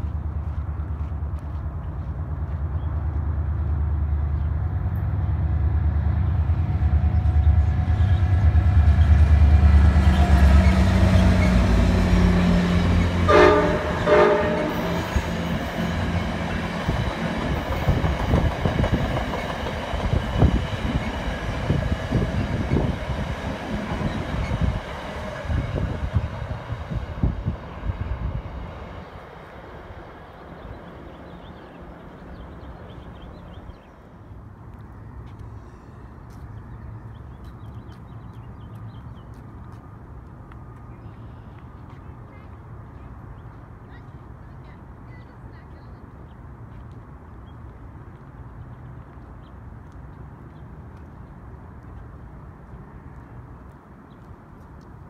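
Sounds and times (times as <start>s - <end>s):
diesel locomotive engine drone: 0.0s - 55.0s
train horn blasts: 13.0s - 15.3s.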